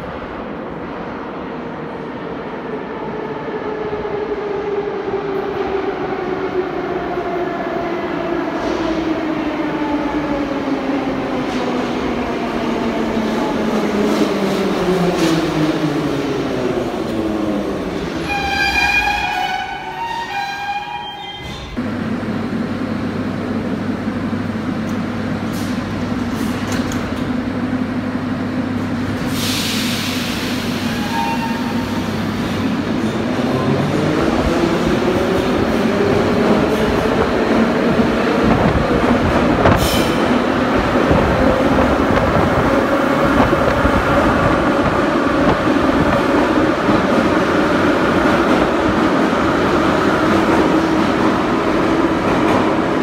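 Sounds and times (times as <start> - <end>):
metro train steady hum: 0.0 - 53.0
air hiss of doors closing: 29.2 - 31.2, 39.7 - 40.4.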